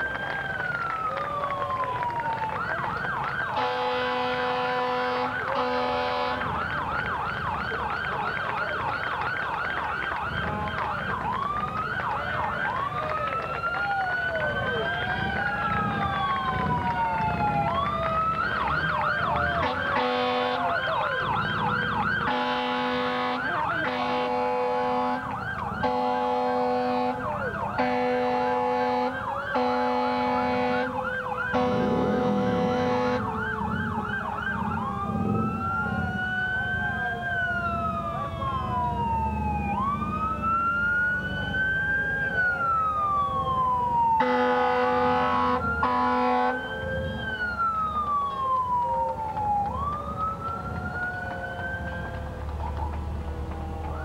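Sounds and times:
fast siren yelp: 0.0s - 54.0s
fire engine sirens wailing: 0.0s - 54.0s
short horn blasts: 3.6s - 6.5s, 19.6s - 20.6s, 22.3s - 25.2s, 25.8s - 27.2s, 27.8s - 30.9s, 31.5s - 33.2s, 44.2s - 46.6s.

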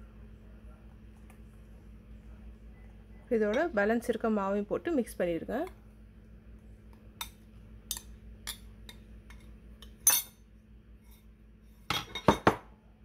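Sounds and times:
kitchenware knocking glass bowl: 11.9s - 12.7s.

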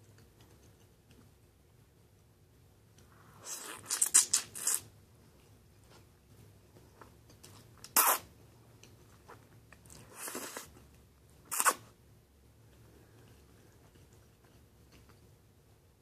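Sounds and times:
slurping spaghetti: 3.4s - 4.9s, 7.9s - 8.3s, 9.9s - 10.8s, 11.5s - 11.9s.

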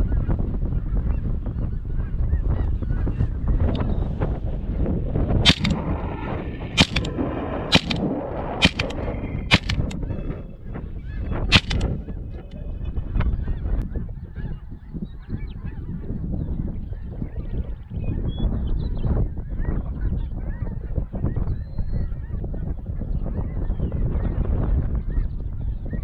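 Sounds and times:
wind rumble on microphone: 0.0s - 26.0s
shotgun blasts: 5.5s - 5.9s, 6.8s - 10.0s, 11.5s - 11.9s.

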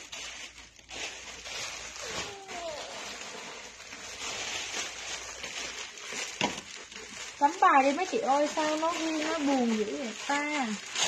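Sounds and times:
plastic bags rustling: 0.0s - 11.0s
young child vocalizing: 2.0s - 3.2s.

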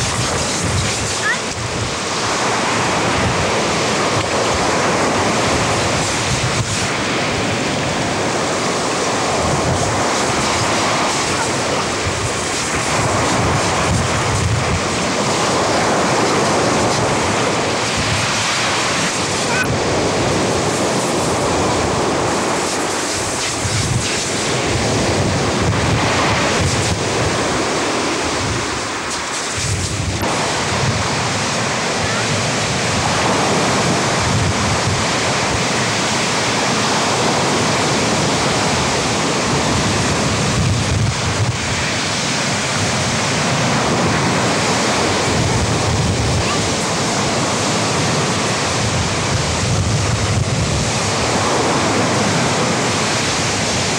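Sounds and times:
surf breaking on shingle beach: 0.0s - 53.9s
wind buffeting microphone: 0.0s - 53.9s.

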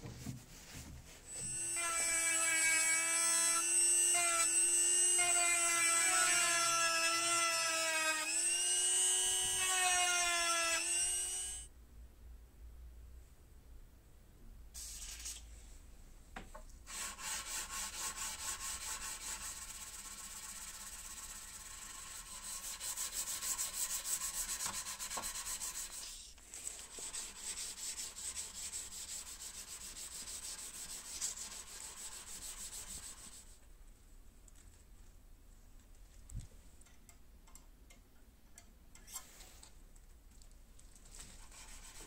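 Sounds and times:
sandpaper rubbing on knife blade: 16.9s - 26.3s, 26.9s - 33.6s, 41.4s - 42.0s.

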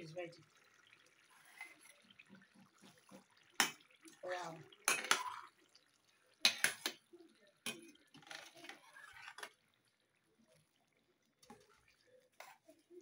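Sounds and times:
metal spoon clinking on pot: 4.8s - 5.4s, 6.4s - 7.0s.

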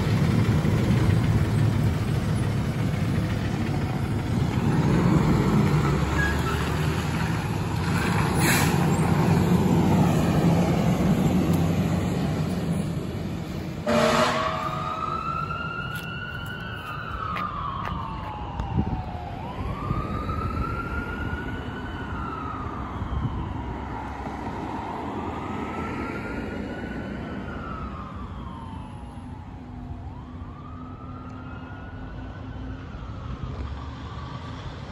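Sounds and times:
diesel engine running: 0.0s - 17.0s
wailing siren: 3.1s - 34.9s
horn blast: 13.8s - 15.1s.

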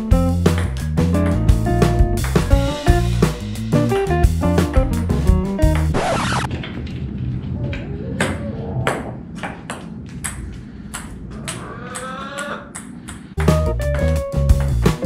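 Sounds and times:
background music with drums and guitar: 0.0s - 5.9s, 13.4s - 15.0s
hen clucking: 11.4s - 12.7s.

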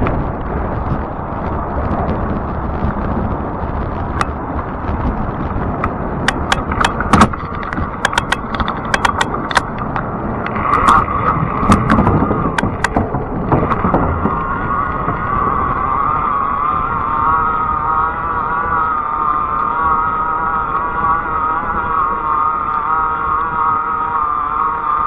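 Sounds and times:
steady whine: 0.0s - 25.0s
wind and tyre rush: 0.0s - 25.0s
bike clicks and rattles: 5.7s - 15.1s.

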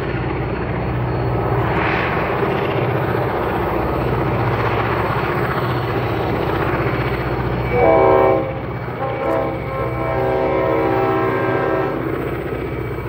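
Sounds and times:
diesel locomotive engine drone: 0.0s - 13.0s
locomotive horn blast: 7.6s - 12.1s.

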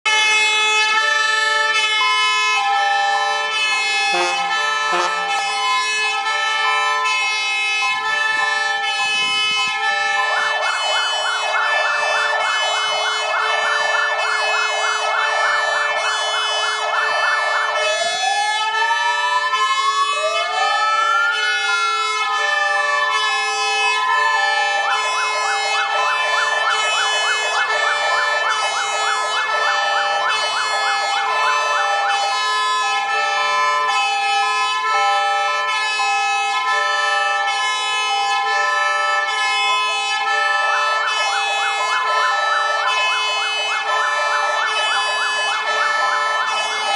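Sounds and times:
electronic siren yelp and wail: 0.1s - 46.9s
held siren tone: 0.1s - 46.9s.

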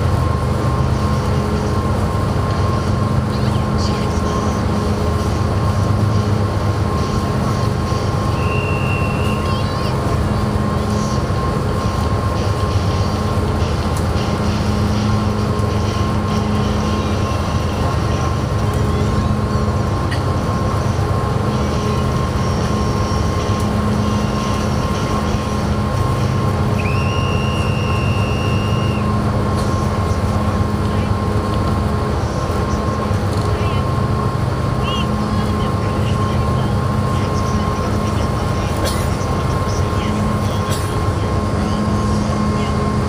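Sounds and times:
constant thin hum: 0.0s - 43.0s
ferry engines droning: 0.0s - 43.0s
brief high tone: 8.3s - 10.0s, 26.8s - 29.2s.

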